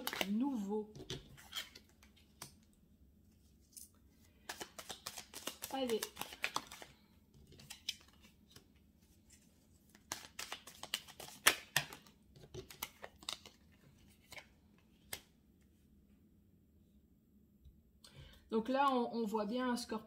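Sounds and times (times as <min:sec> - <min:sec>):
cards snapping and tapping: 0:04.4 - 0:06.9, 0:09.9 - 0:13.6.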